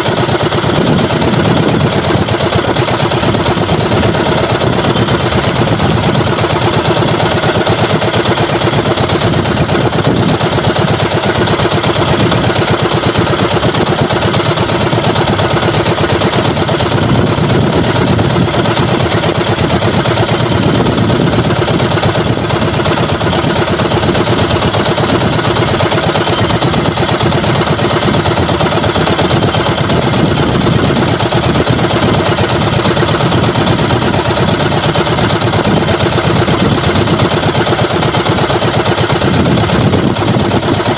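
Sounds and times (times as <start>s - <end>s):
boat engine chugging: 0.0s - 40.9s.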